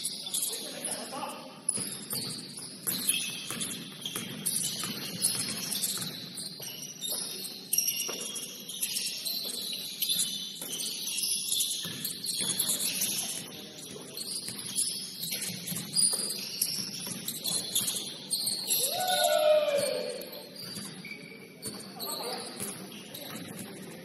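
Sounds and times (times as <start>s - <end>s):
shoes squeaking on gym floor: 0.0s - 24.0s.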